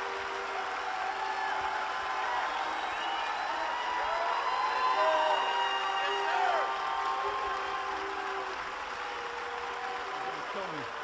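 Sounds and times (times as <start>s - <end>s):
whoops: 0.0s - 10.6s
audience applauding and cheering: 0.0s - 11.0s.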